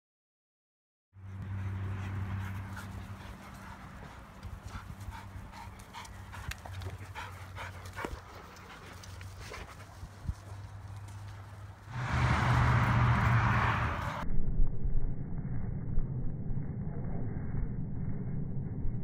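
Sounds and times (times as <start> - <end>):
dogs panting: 1.2 - 11.7.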